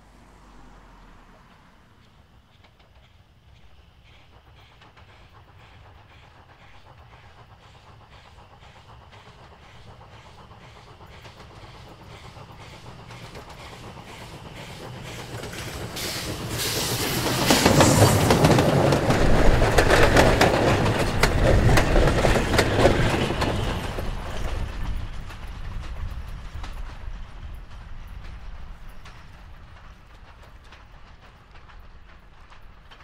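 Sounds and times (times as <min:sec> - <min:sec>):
steam locomotive passing: 0:00.0 - 0:33.0
wheels clattering over rail joints: 0:08.6 - 0:33.0.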